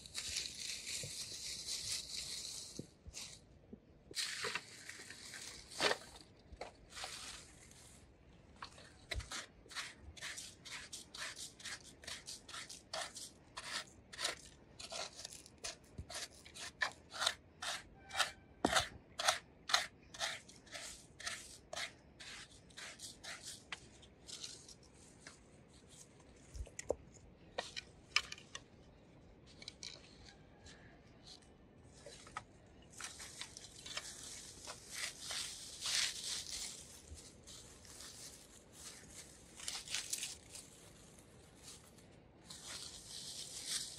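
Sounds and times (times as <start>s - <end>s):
dry leaves crackling: 0.0s - 3.4s, 4.2s - 8.1s, 32.9s - 43.9s.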